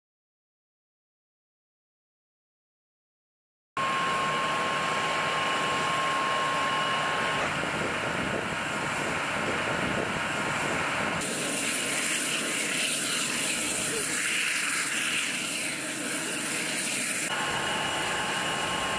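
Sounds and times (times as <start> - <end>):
high steady whine: 3.8 - 18.9.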